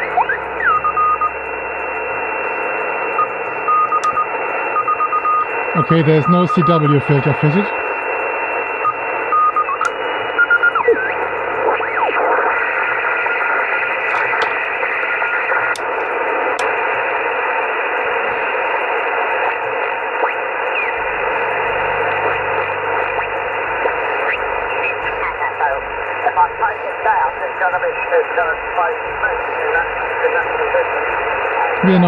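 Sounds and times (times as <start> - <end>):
radio static and hiss: 0.0 - 32.0.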